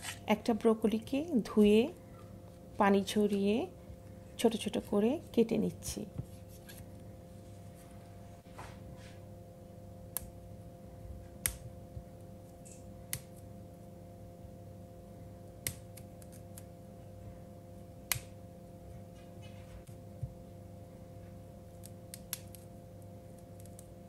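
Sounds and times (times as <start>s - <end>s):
faint steady hum: 0.0s - 24.0s
small ticks: 23.3s - 23.9s.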